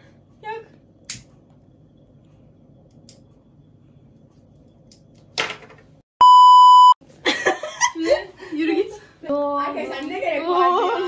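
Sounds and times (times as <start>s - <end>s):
censor bleep tone: 6.2s - 7.0s.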